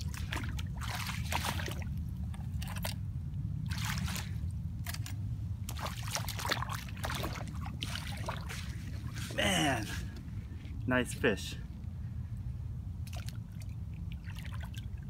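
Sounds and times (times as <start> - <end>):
wading water splashes: 0.0 - 10.8, 13.0 - 15.0
low rumble: 0.0 - 15.0.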